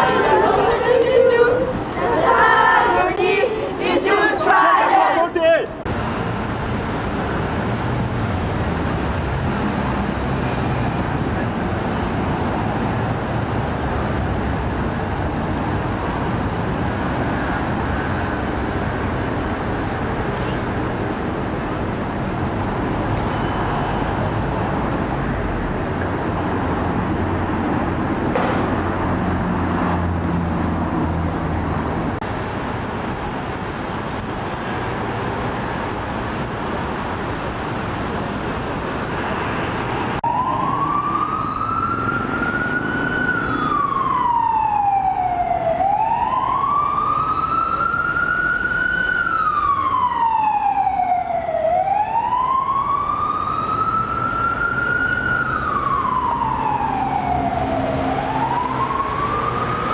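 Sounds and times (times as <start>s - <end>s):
emergency siren wailing: 0.0s - 3.0s, 40.1s - 59.9s
street traffic: 0.0s - 59.9s.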